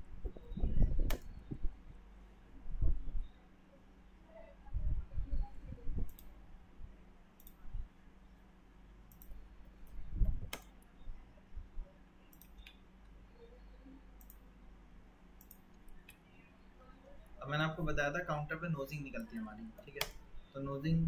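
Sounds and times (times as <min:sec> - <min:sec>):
computer mouse clicks: 0:01.0 - 0:01.4, 0:06.0 - 0:06.3, 0:07.4 - 0:07.6, 0:09.1 - 0:10.9, 0:12.2 - 0:13.1, 0:14.2 - 0:14.5, 0:15.4 - 0:16.3, 0:19.2 - 0:20.2.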